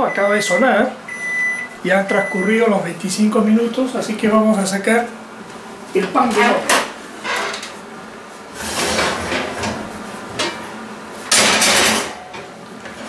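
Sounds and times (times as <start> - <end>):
pot scraping across wire rack: 8.5 - 10.6.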